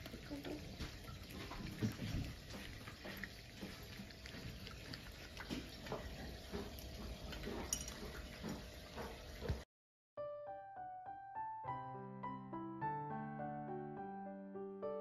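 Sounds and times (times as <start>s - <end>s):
cats chewing and licking: 0.0s - 9.5s.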